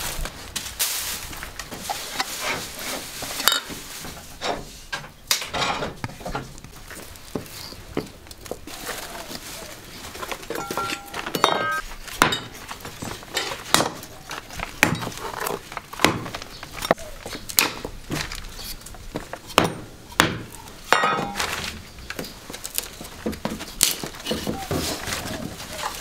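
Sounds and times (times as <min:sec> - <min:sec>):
utensils and crockery clinking: 0:10.4 - 0:13.6.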